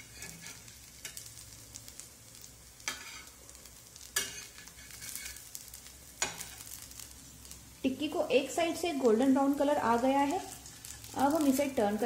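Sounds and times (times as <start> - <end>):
food sizzling in oil: 0.0 - 12.0
steel spatula clicking on pan: 6.2 - 6.6.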